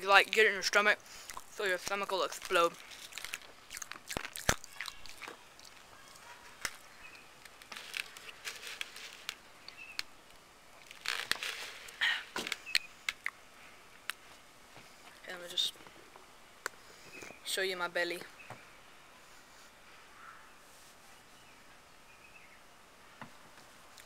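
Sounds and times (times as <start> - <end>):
popping candy crackling: 0.6 - 13.4
chewing and crunching: 1.1 - 1.6, 2.3 - 10.0.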